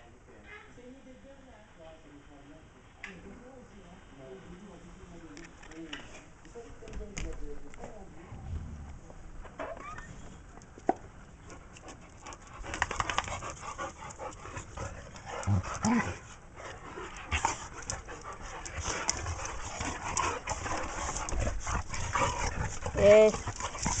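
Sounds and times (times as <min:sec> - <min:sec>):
dogs panting: 0:11.2 - 0:24.0
low dog vocal sounds: 0:11.5 - 0:24.0.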